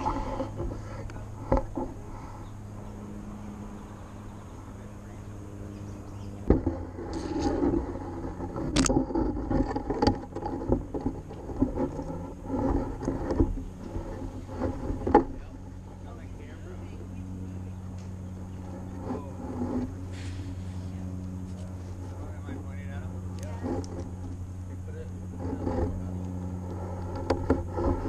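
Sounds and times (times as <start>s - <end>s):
low steady hum: 0.0s - 28.0s
camera brushing through branches: 6.3s - 15.6s, 18.1s - 22.5s.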